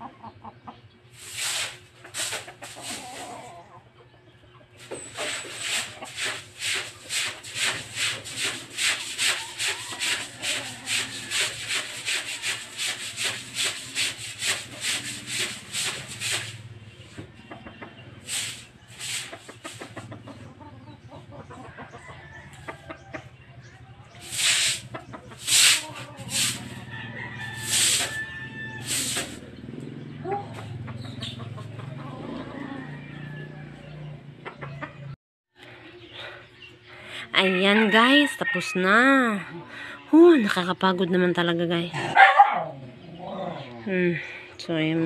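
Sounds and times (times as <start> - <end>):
broom scrubbing wet concrete: 1.1 - 3.6, 4.8 - 17.2, 18.1 - 20.4, 24.1 - 29.6.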